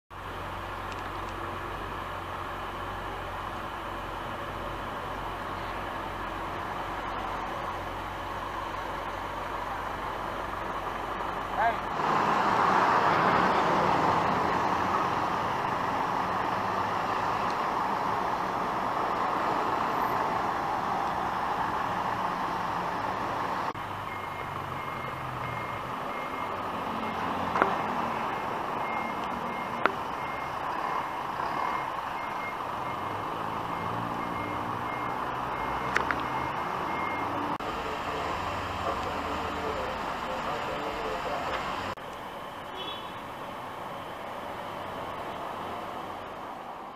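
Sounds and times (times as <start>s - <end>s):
traffic on wet street: 0.1s - 46.9s
truck reversing alarm beeps: 19.0s - 21.4s, 23.8s - 44.3s.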